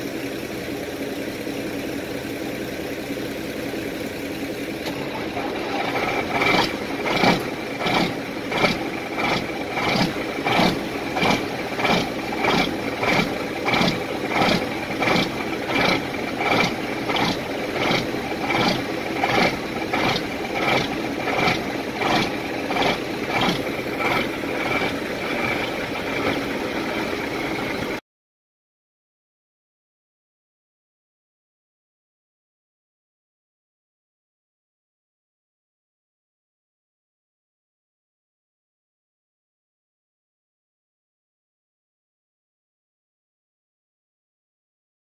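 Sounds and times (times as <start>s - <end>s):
diesel truck engine idling: 0.0s - 28.0s.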